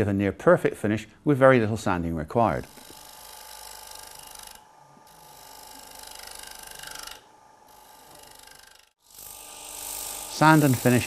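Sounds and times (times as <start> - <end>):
cutter hissing on wood: 2.7 - 11.0
lathe running tone: 2.7 - 11.0.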